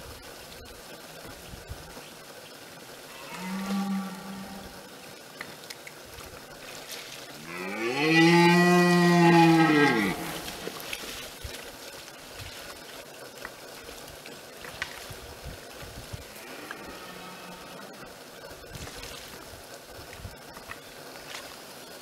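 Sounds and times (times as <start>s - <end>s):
water splashing: 1.0s - 22.0s
deer stag roaring: 7.4s - 10.5s.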